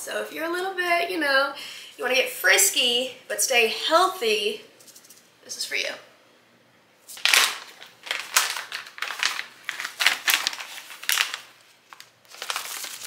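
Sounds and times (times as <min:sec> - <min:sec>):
plastic pouch tearing and crackling: 0:07.1 - 0:13.0.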